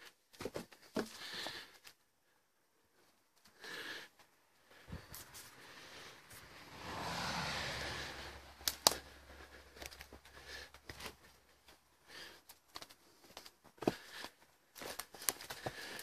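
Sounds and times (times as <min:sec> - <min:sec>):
car passing: 0:05.0 - 0:10.8.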